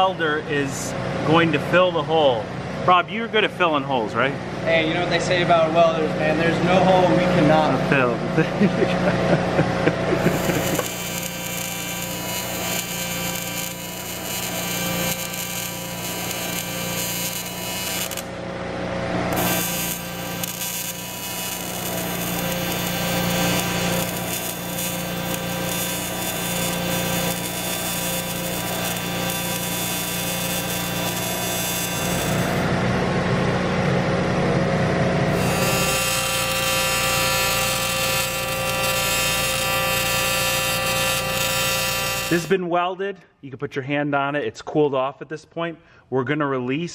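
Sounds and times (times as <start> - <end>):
welding arc buzzing: 9.2 - 18.4, 19.2 - 32.8, 35.2 - 42.6.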